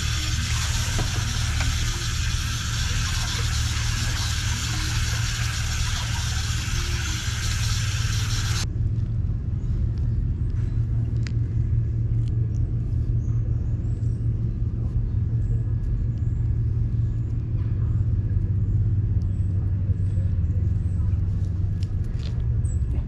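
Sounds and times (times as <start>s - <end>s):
tap water running into bowl: 0.0s - 8.6s
steady low rumble: 0.0s - 23.0s.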